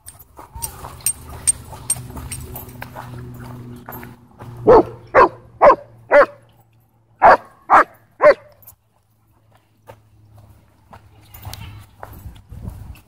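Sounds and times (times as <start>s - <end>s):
dog barking: 4.6s - 6.4s, 7.2s - 8.6s.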